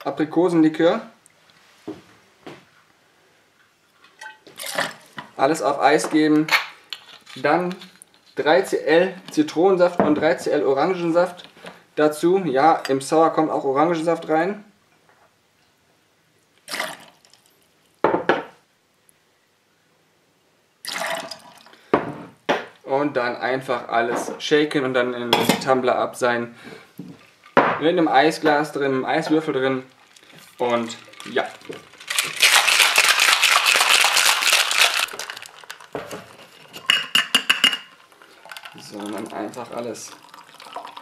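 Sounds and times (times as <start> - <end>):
juice splashing over ice: 16.6 - 18.0, 20.8 - 21.7, 29.4 - 36.6, 37.9 - 41.0.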